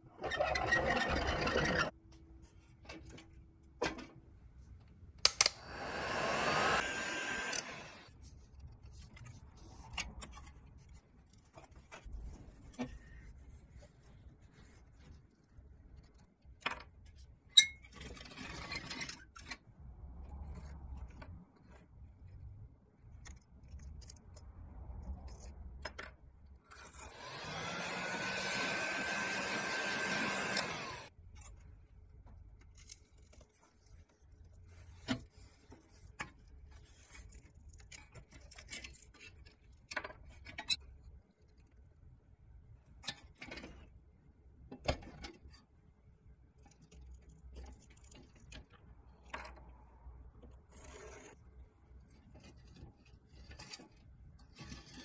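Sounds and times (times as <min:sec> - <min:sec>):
screwdriver scraping metal: 0:00.2 - 0:02.0, 0:05.2 - 0:08.1, 0:26.7 - 0:31.1
power drill whining: 0:05.5 - 0:08.1, 0:27.1 - 0:31.1.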